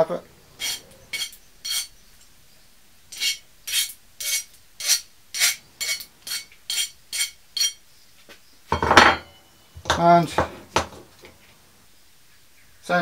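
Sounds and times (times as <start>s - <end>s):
hand file rasping on metal pipe: 0.6s - 1.9s, 3.1s - 7.8s.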